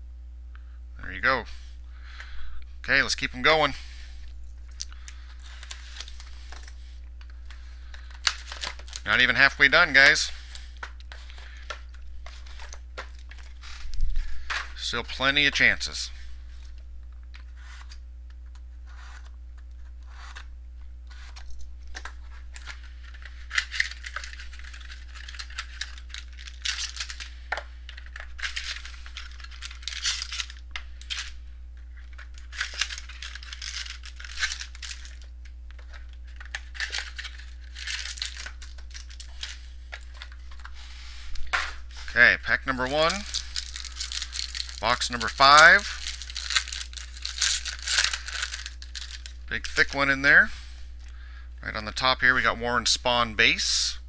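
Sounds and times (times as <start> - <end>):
low electrical hum: 0.0 - 54.0
foil packs crinkling: 4.7 - 18.0, 21.1 - 51.2
foil packs tearing: 8.0 - 10.8, 22.0 - 31.3, 32.0 - 35.3, 35.9 - 40.6, 42.7 - 49.4.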